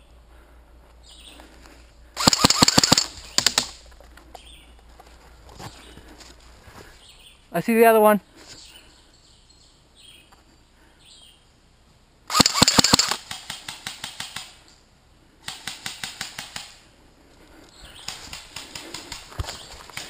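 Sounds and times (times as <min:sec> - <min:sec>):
airsoft rifle bursts: 0:02.2 - 0:03.8, 0:12.3 - 0:14.6.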